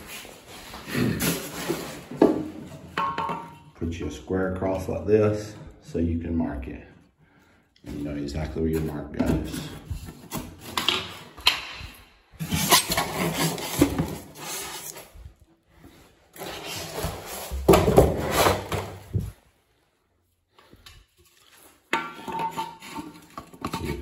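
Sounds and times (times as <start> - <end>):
square rubbing and scraping on pipes: 21.2 - 24.0.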